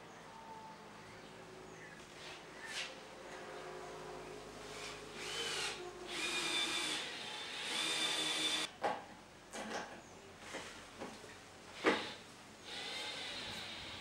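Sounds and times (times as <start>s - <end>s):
cordless drill motor whining: 5.2s - 8.7s, 11.8s - 14.0s.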